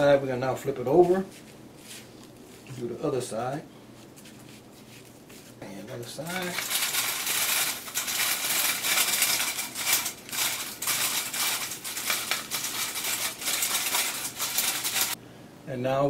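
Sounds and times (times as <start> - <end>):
flour sifter rasping against mesh: 4.0 - 15.2.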